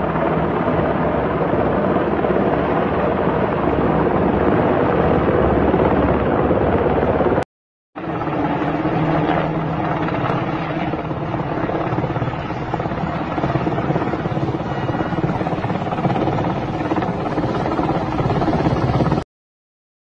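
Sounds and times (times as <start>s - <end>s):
helicopter rotor chop: 0.0s - 7.4s, 8.0s - 19.2s
turbine engine noise: 8.0s - 19.2s.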